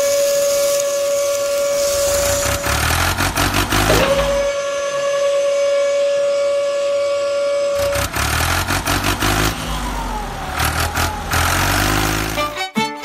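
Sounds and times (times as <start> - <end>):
low pulsing engine-like drone: 0.6 - 8.2.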